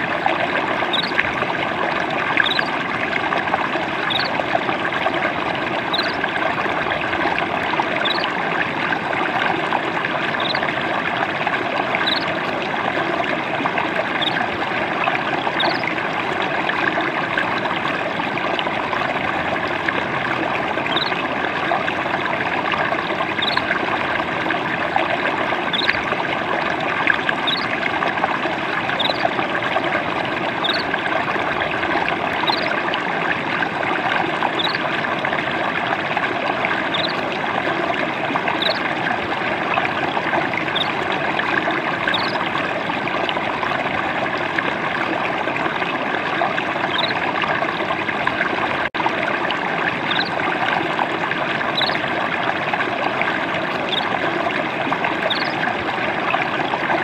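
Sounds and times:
stream trickling over stones: 0.0 - 57.0
faint high rising chirp: 0.9 - 1.2, 2.4 - 2.7, 4.1 - 4.3, 5.9 - 6.2, 10.4 - 10.6, 12.0 - 12.3, 15.6 - 15.8, 20.9 - 21.2, 23.4 - 23.6, 27.5 - 27.7, 34.6 - 34.8, 38.6 - 38.8, 42.1 - 42.4, 55.3 - 55.5.

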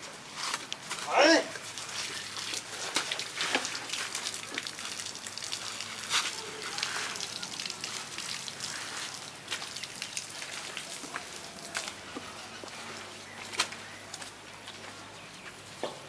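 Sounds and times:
water from hose splattering on mud: 0.5 - 12.0.

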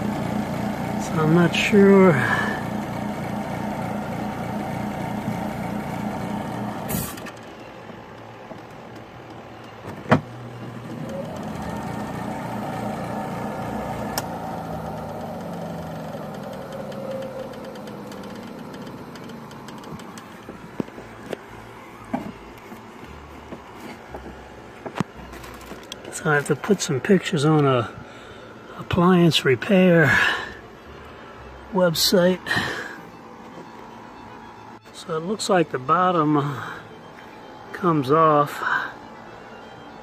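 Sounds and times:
second hum: 0.0 - 7.6
washing machine motor humming: 0.0 - 22.5.

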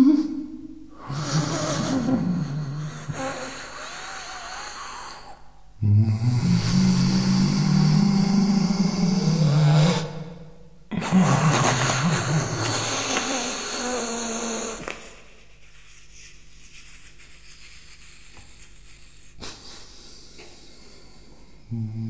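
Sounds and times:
breathy improvised voice: 0.0 - 10.2.

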